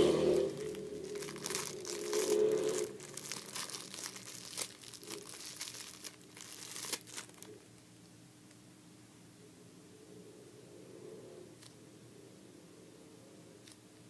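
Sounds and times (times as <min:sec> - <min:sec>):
plastic bag crinkling: 0:00.4 - 0:07.8.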